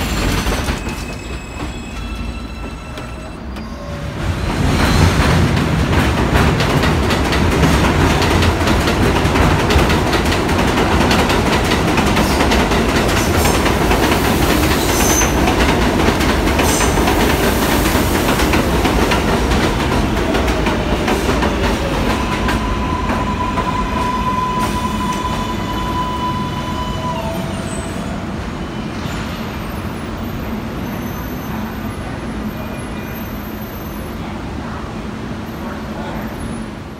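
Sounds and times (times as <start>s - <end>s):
high wheel squeal: 0.0s - 5.1s, 22.2s - 31.8s
train wheels clattering over rails: 0.0s - 25.5s.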